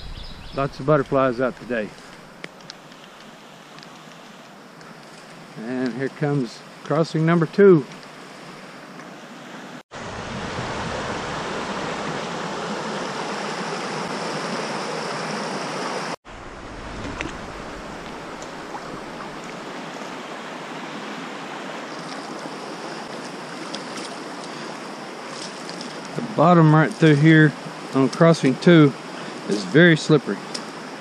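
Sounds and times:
creek running over rocks: 0.7s - 9.2s, 10.4s - 31.0s.

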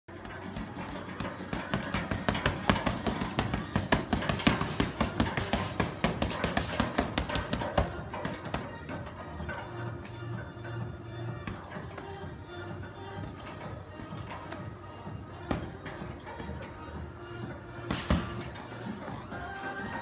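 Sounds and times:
gloves punching heavy bag: 0.1s - 9.6s, 13.2s - 16.8s, 17.8s - 20.0s.

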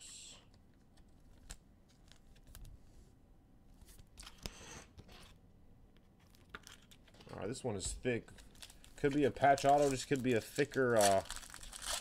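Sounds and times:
trading cards clicking and rustling: 8.3s - 12.0s.

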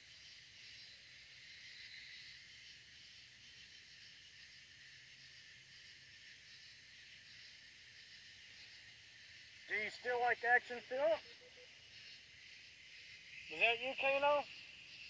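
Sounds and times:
crickets and night insects chirring: 0.0s - 15.0s.

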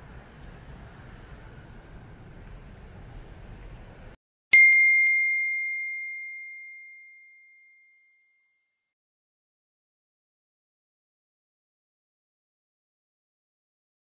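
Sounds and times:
faint outdoor ambience: 0.0s - 4.2s
bell ding ringing: 4.5s - 8.6s.

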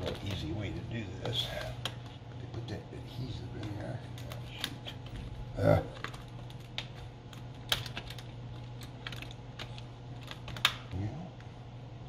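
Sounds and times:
plastic clicks and snaps: 6.0s - 10.9s.

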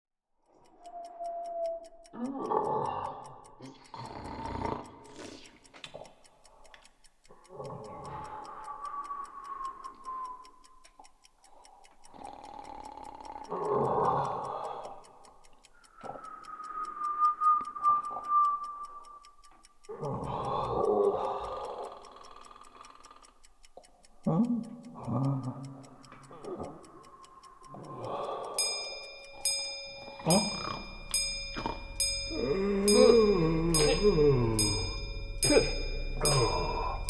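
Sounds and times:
clock ticking: 0.4s - 37.0s
high held tone: 28.6s - 37.0s.

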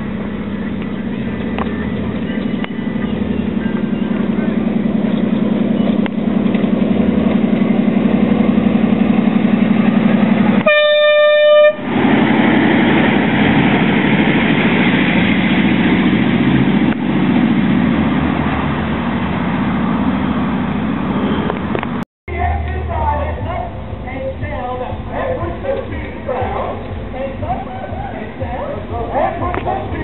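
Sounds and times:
train running noise: 0.0s - 30.0s
short train horn blast: 10.6s - 11.9s.

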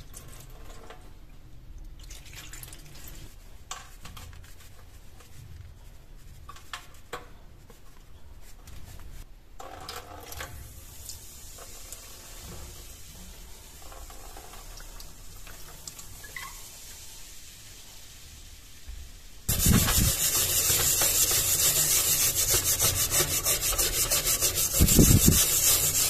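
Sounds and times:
vinegar pour splashing: 2.0s - 3.3s.

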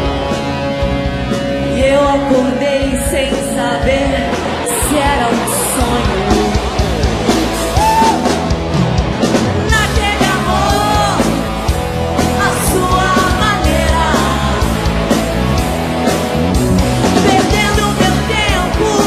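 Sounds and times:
live rock band playing: 0.0s - 19.0s
man and woman singing: 9.6s - 11.4s, 12.3s - 14.8s, 17.2s - 19.0s.

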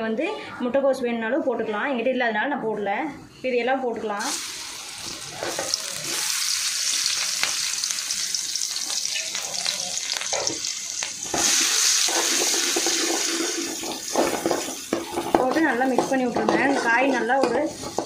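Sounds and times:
vegetables sizzling in hot oil: 4.2s - 18.0s.

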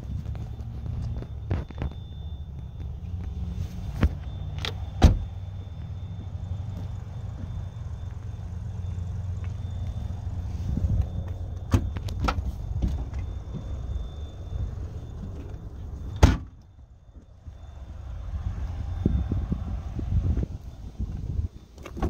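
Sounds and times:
trunk lid slamming shut: 5.0s - 5.3s, 16.2s - 16.6s
low rumble: 16.8s - 21.6s.

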